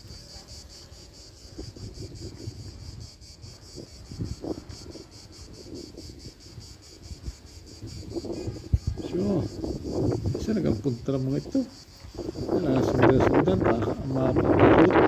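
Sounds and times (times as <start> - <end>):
insects chirping trill: 0.0 - 15.0
wind rumble on microphone: 0.0 - 15.0.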